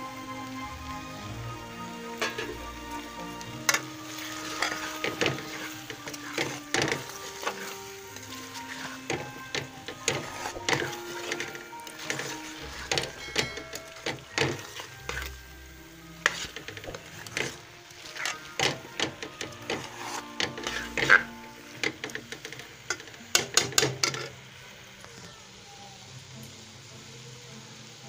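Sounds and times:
curry frying: 0.0s - 28.0s
metal spoon scraping a pan: 2.2s - 24.4s.

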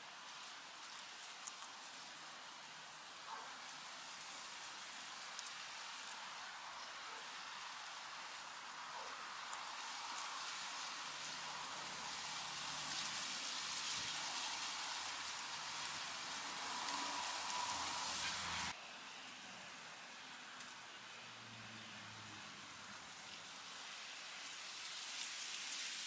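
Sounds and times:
leaves rustling: 0.0s - 26.0s
guinea pigs munching weeds: 0.1s - 18.7s.

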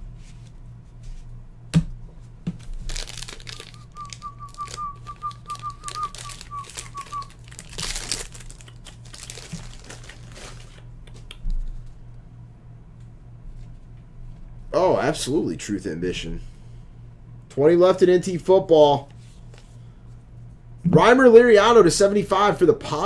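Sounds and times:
foil wrapper crinkling and tearing: 2.6s - 10.9s.

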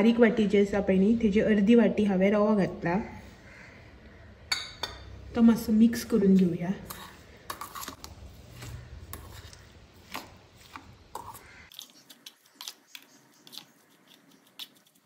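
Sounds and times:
metal spoon scraping steel bowl: 6.0s - 15.0s.

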